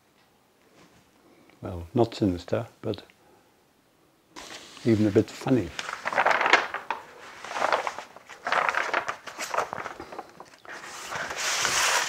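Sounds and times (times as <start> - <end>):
paper rustling and shuffling: 4.4 - 12.0.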